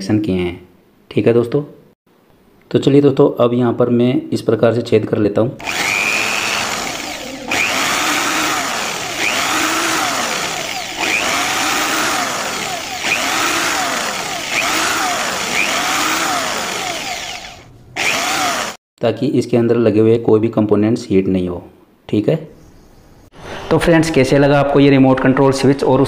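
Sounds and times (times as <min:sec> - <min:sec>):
cordless drill boring wood: 0:05.6 - 0:18.8.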